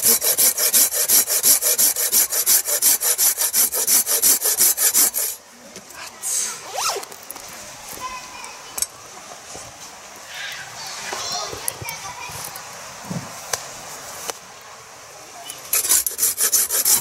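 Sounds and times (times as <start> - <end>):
hand saw cutting wood: 0.0 - 5.4, 15.7 - 17.0.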